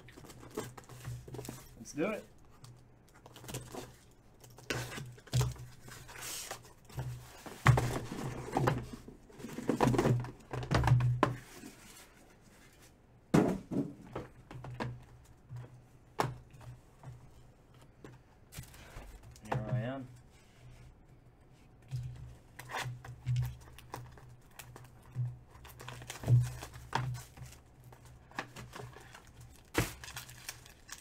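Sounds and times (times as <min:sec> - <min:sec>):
cardboard rustling and scraping: 0:03.3 - 0:13.9
boxes knocking and thudding: 0:06.9 - 0:11.7, 0:13.3 - 0:17.3, 0:25.0 - 0:27.6.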